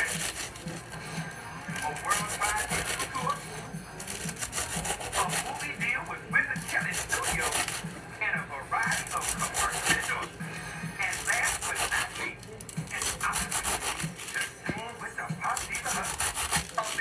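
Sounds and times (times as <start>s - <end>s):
knife chopping lettuce on board: 0.0s - 0.8s, 1.7s - 3.2s, 4.0s - 5.6s, 6.5s - 7.9s, 8.8s - 10.3s, 11.0s - 17.0s.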